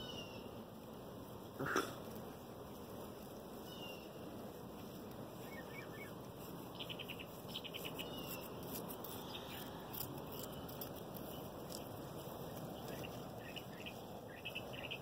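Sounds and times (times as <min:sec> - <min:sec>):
faint bird chirps: 0:00.0 - 0:00.5, 0:03.6 - 0:04.2, 0:05.4 - 0:08.6, 0:12.8 - 0:15.0
outdoor background hiss: 0:00.0 - 0:15.0.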